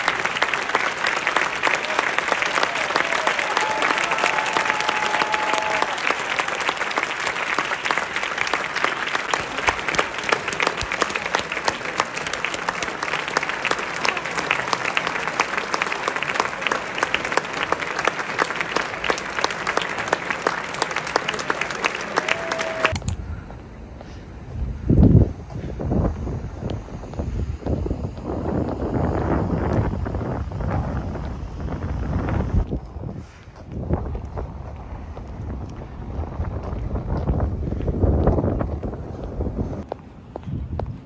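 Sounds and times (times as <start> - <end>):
large audience applauding: 0.0 - 23.0.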